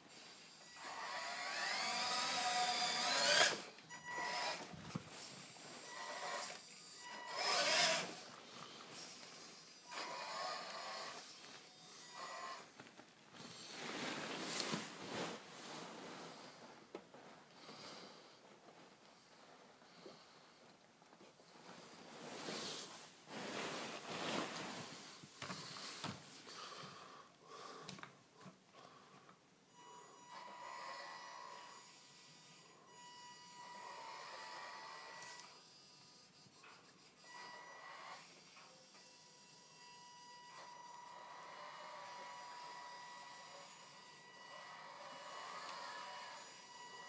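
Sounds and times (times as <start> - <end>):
small electric motor whining: 0.5 - 12.8, 29.8 - 47.0.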